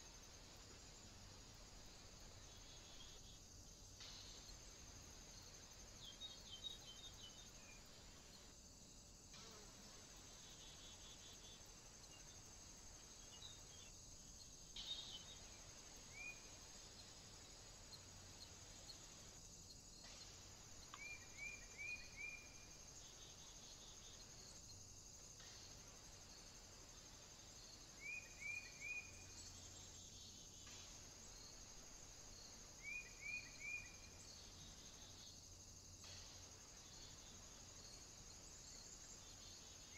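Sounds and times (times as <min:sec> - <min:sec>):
steady high-pitched hiss: 0:00.0 - 0:39.9
small birds chirping: 0:05.4 - 0:08.2, 0:10.4 - 0:19.1.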